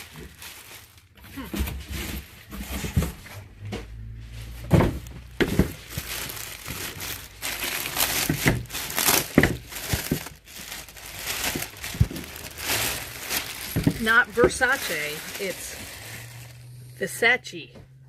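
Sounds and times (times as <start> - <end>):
plastic bag crinkling: 0.0 - 1.5, 4.4 - 17.0.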